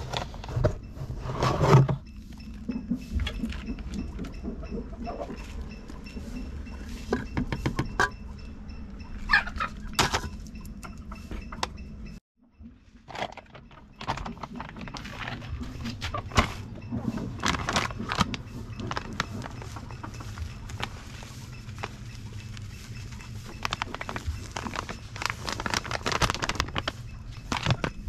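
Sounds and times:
clicks and rustles: 13.0 - 28.0
foil sachet crinkling: 17.4 - 28.0.

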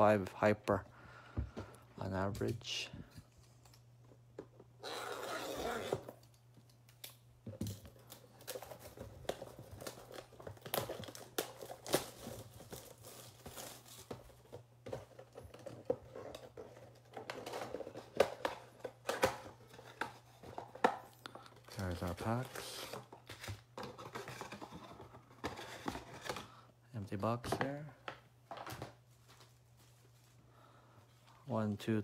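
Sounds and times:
plastic wrap tearing and crinkling: 7.9 - 14.1.

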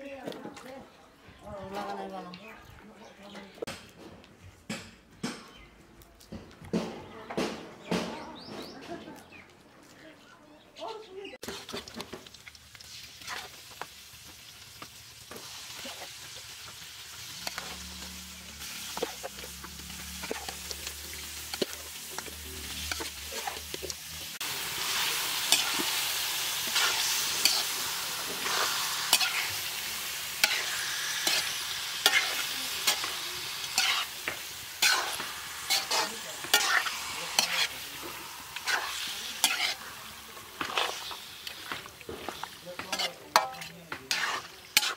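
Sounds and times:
food sizzling in a wok: 11.4 - 44.9
metal spatula scraping a wok: 12.9 - 13.7, 15.2 - 44.9.

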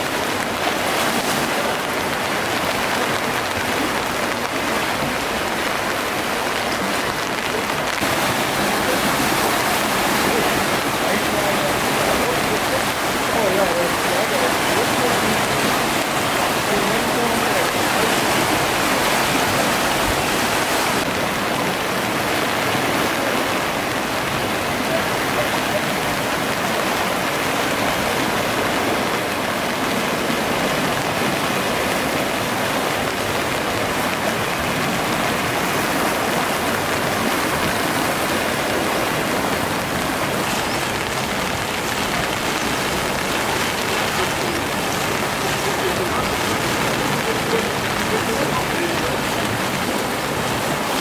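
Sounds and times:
floodwater rushing: 0.0 - 51.0.

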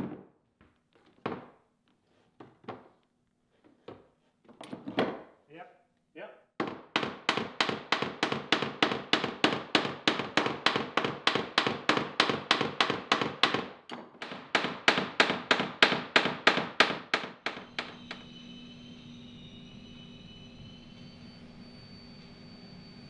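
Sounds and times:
hammer striking nails: 6.6 - 18.2.

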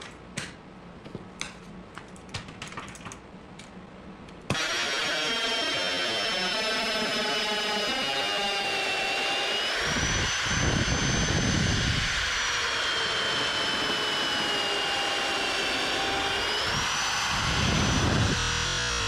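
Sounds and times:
electric drill motor whine: 4.5 - 19.0.

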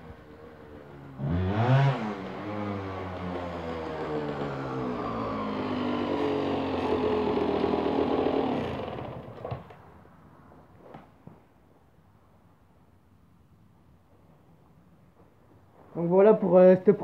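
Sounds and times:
motorcycle engine running: 0.0 - 9.5.

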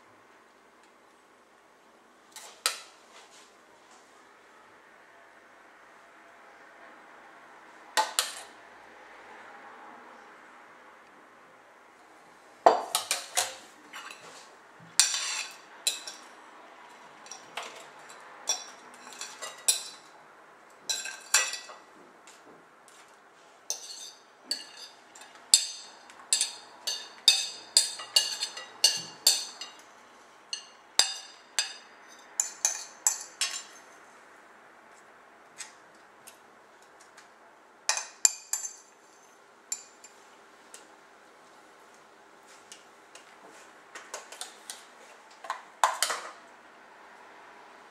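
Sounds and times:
fork scraping a plate: 13.0 - 16.3, 17.2 - 20.0, 23.7 - 25.4.

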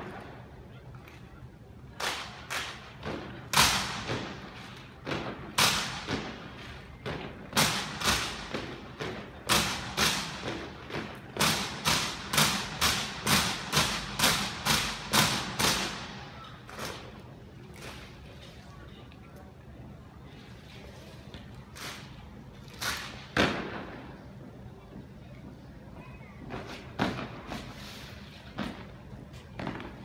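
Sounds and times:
rifles and boots striking in unison: 2.0 - 16.0.

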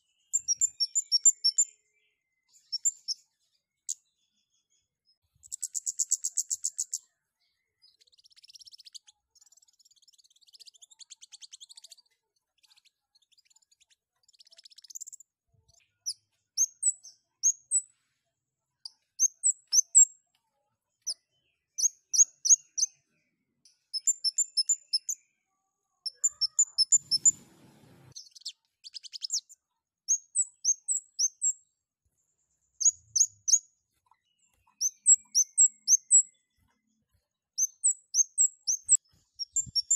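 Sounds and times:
very high sharp chirps: 26.1 - 27.4.

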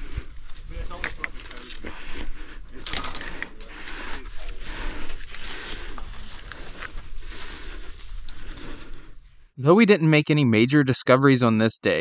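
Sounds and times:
hands and shoes scraping rock: 0.0 - 2.0
rustling dry leaves and twigs: 0.0 - 9.5.

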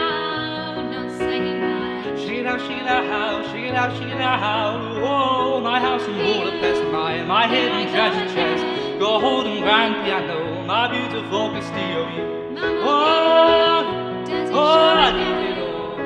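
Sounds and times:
person singing: 0.0 - 16.0
sustained instrumental backing: 3.6 - 16.0.

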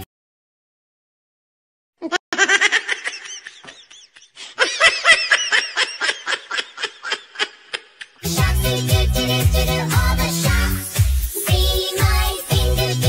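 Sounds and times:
high-pitched laughter: 2.0 - 8.2.

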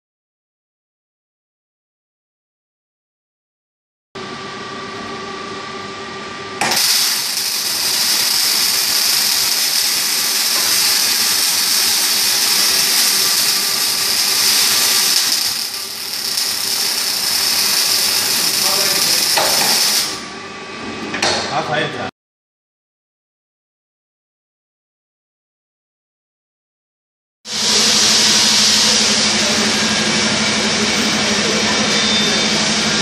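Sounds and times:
machine hum with steady tone: 4.2 - 22.0, 27.5 - 33.0
welding arc crackling hiss: 6.6 - 20.3, 27.5 - 29.8.

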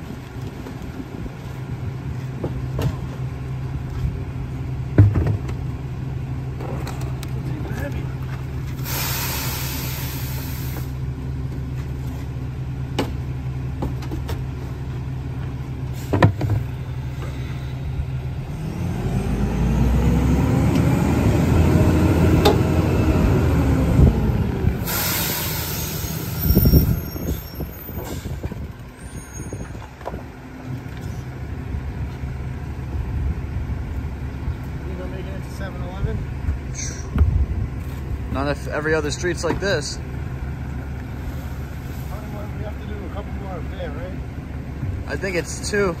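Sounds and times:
air hiss: 8.8 - 11.0, 24.8 - 27.3
engine revving: 18.4 - 26.9.

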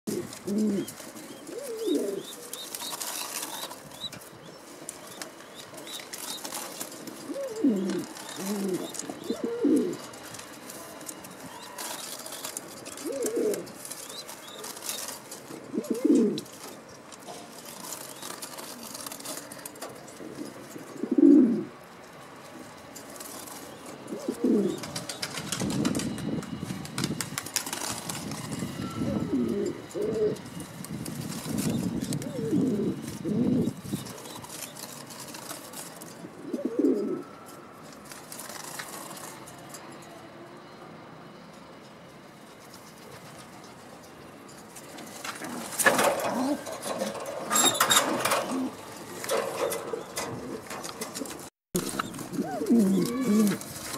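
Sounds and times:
pigeons cooing: 0.1 - 10.2, 11.4 - 16.5, 17.9 - 21.8, 23.4 - 25.8, 28.9 - 30.4, 31.6 - 34.8, 36.2 - 37.3, 45.4 - 53.9
wings flapping and scuffling: 0.1 - 21.1, 22.6 - 37.1, 37.9 - 39.5, 44.7 - 53.9.

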